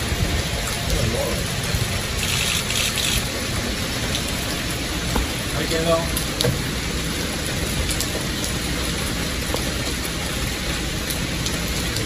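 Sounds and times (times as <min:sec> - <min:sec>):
steady rain falling: 0:00.0 - 0:12.0.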